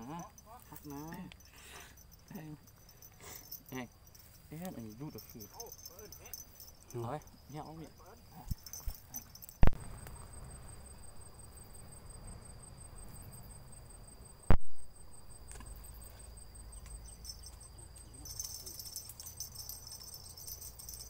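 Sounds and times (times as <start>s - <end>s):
high jingling rattle: 0.0s - 9.6s, 16.8s - 21.0s
insects calling: 0.0s - 21.0s.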